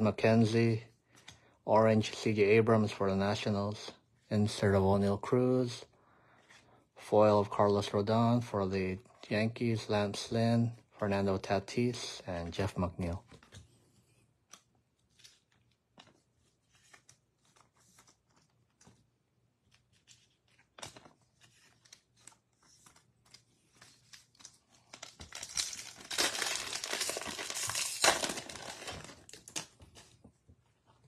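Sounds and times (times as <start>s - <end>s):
card pack wrapper tearing: 23.9s - 30.1s.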